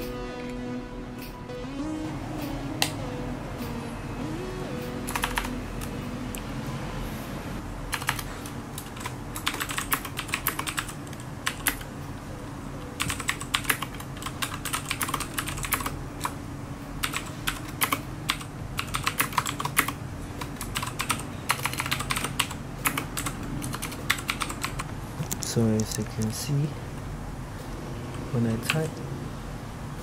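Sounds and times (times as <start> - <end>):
computer keyboard typing: 5.0 - 6.0, 7.9 - 11.9, 13.0 - 16.4, 17.0 - 26.4.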